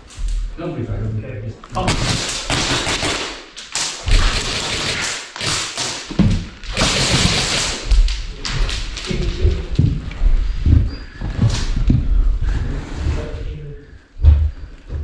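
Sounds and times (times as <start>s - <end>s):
footsteps with heavy thuds: 6.1s - 12.8s, 14.0s - 15.0s.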